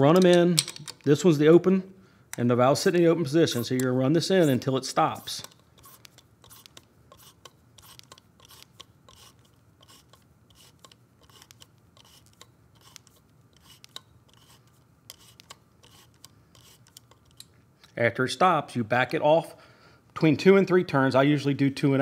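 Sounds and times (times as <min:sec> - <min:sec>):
allen key metallic clicks: 0:00.1 - 0:01.2.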